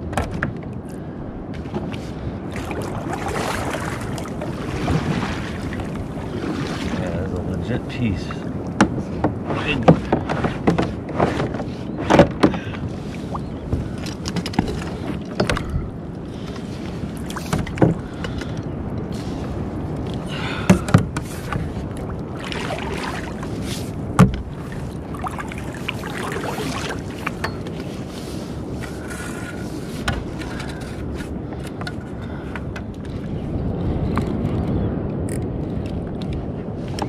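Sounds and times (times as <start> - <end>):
water noise around kayak: 0.0 - 37.0
wind: 0.0 - 37.0.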